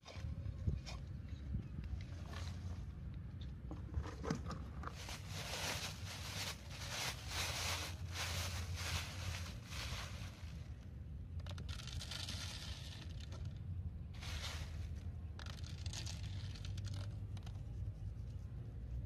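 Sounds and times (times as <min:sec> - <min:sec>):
low steady hum: 0:00.0 - 0:19.0
plastic bag of rice rustling: 0:04.9 - 0:10.7, 0:14.2 - 0:17.1.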